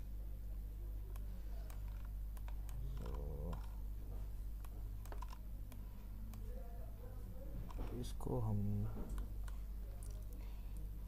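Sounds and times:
low electrical hum: 0:00.0 - 0:11.0
keyboard and mouse clicks: 0:01.1 - 0:03.8, 0:04.6 - 0:06.5.

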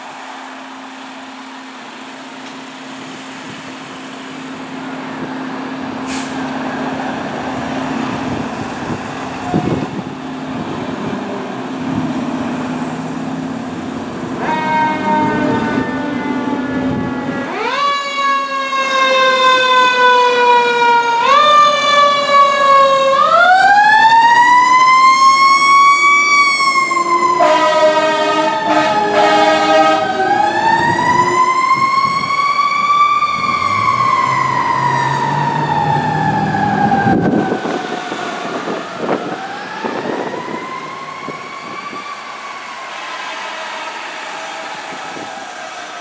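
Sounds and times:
fire truck siren wailing: 0:00.0 - 0:46.0
steady horn note: 0:27.4 - 0:30.1.

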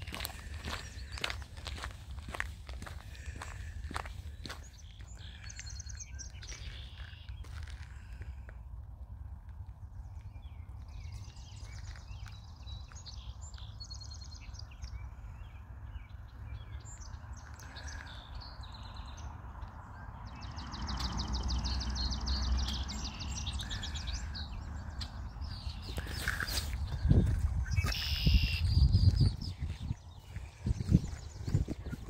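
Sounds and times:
songbirds trilling: 0:00.0 - 0:08.5, 0:09.8 - 0:32.0
wind rumble on microphone: 0:24.5 - 0:32.0.

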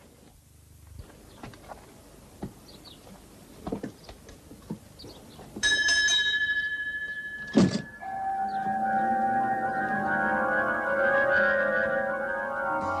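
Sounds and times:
light knocks of people climbing: 0:01.0 - 0:05.8
fire engine bell ringing: 0:05.6 - 0:13.0.

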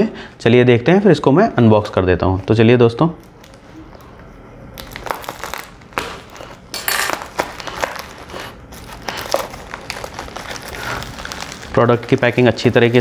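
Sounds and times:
plastic bag crinkling: 0:04.8 - 0:13.0.

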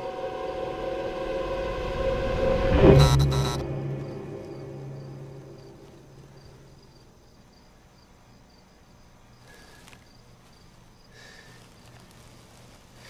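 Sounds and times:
loud low hit: 0:00.0 - 0:06.2
low hum: 0:00.0 - 0:07.0
cricket chirping: 0:02.9 - 0:13.0
short breaths: 0:09.4 - 0:10.1, 0:11.1 - 0:13.0.

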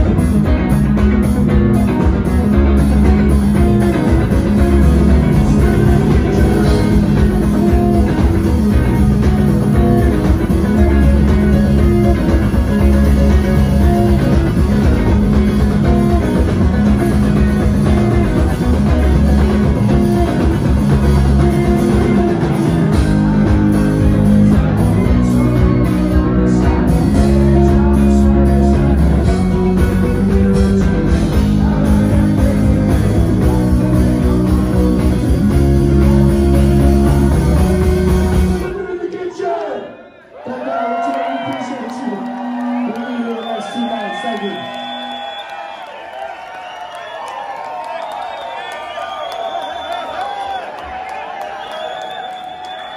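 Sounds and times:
live rock band playing: 0:00.0 - 0:39.0.

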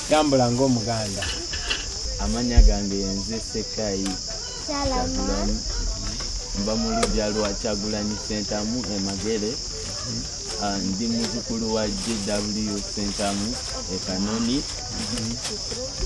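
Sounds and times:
crickets trilling: 0:00.0 - 0:16.0
man speaking: 0:02.1 - 0:04.3, 0:05.0 - 0:15.4.

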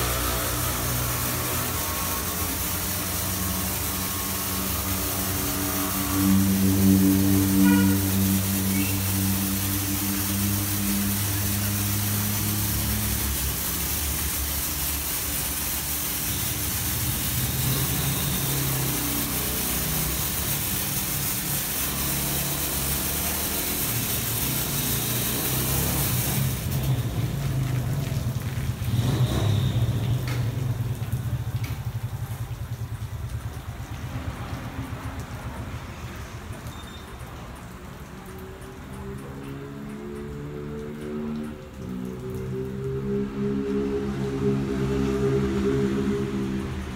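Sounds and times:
high-pressure water spray hissing: 0:00.0 - 0:46.9
pump and motor hum: 0:00.0 - 0:46.9.

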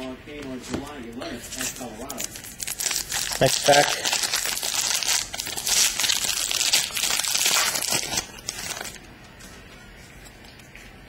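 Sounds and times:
foil wrapper tearing and crinkling: 0:01.6 - 0:09.0.

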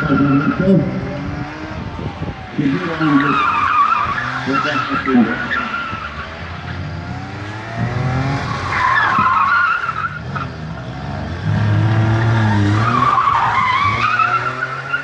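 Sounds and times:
car engine revving: 0:00.0 - 0:15.0
tyres squealing: 0:02.7 - 0:06.9, 0:08.4 - 0:10.6, 0:11.9 - 0:15.0.

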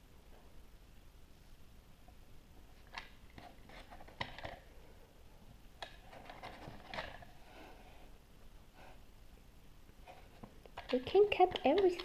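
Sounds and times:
plastic toy clicks and scrapes: 0:10.8 - 0:12.0.

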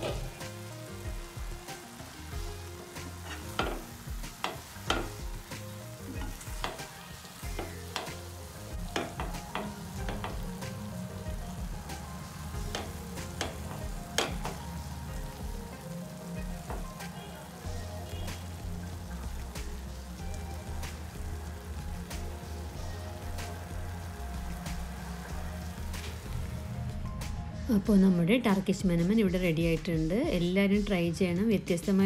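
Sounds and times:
light sizzle: 0:00.0 - 0:32.0
spatula scraping frying pan: 0:02.9 - 0:05.4.

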